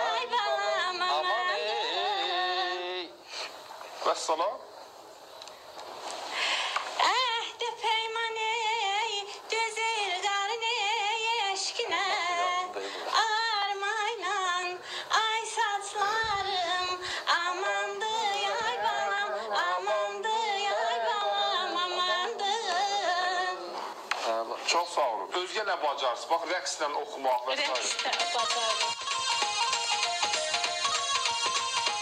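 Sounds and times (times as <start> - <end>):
woman singing unaccompanied: 0.0 - 3.1, 7.0 - 23.7, 27.8 - 32.0.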